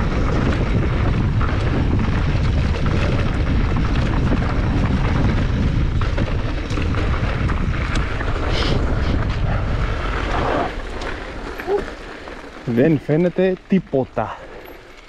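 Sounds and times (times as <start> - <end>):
wind buffeting microphone: 0.0 - 13.2
bike clicks and rattles: 0.0 - 15.0.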